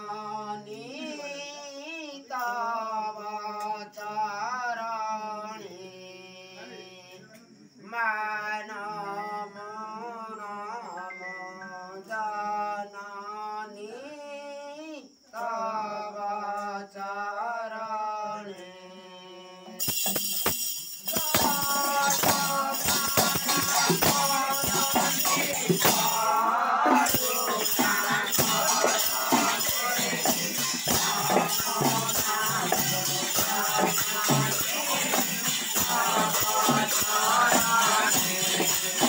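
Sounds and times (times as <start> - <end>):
men chanting together: 0.0 - 7.1, 15.4 - 19.7, 21.1 - 39.0
hand cymbals jangling: 19.8 - 39.0.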